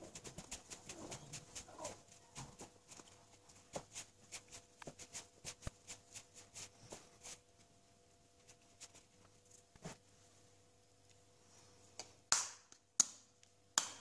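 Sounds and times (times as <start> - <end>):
hands rubbing butter into flour: 2.8 - 7.5.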